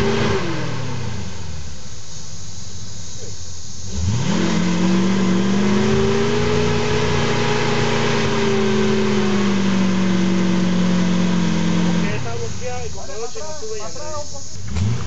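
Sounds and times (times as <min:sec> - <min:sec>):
engine revving at high revs: 0:00.0 - 0:01.8, 0:03.8 - 0:13.0, 0:14.5 - 0:15.0.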